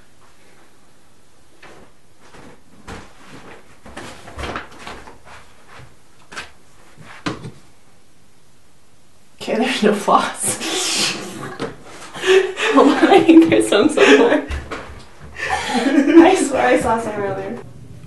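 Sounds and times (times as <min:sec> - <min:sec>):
soft footsteps: 0:01.5 - 0:07.7.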